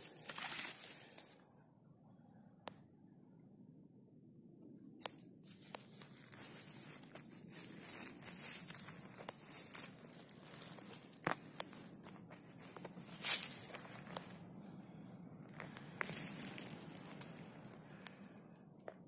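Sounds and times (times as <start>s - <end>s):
leaf litter rustling and crackling: 0.0s - 1.4s, 5.0s - 14.4s, 15.6s - 18.2s
twigs snapping: 0.0s - 1.4s, 5.0s - 14.4s, 15.5s - 18.3s.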